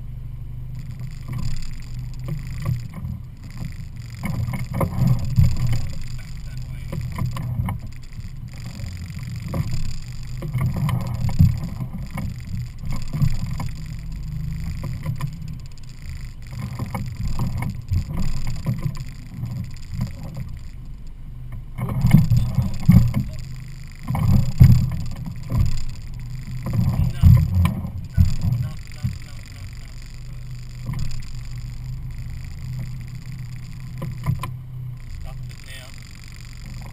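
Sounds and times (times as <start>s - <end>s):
outboard motor running: 0.0s - 36.9s.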